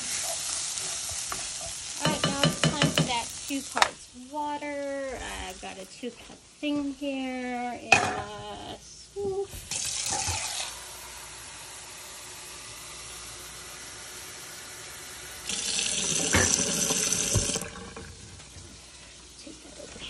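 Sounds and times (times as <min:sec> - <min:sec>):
tap running water into cup: 0:15.5 - 0:18.2.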